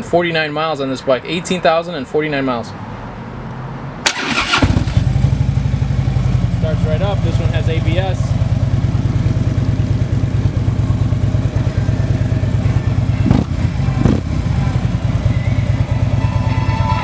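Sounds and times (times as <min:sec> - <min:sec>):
motorcycle engine idling: 0:04.2 - 0:17.0.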